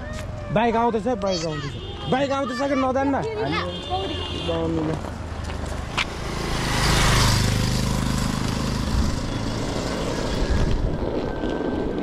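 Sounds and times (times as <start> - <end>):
motorcycle engine passing: 5.1 - 12.0.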